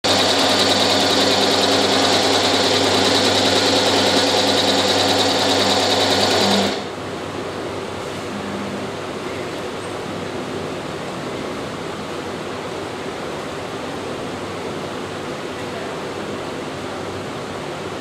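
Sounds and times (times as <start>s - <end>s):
knitting machine humming and whining: 0.0s - 7.0s.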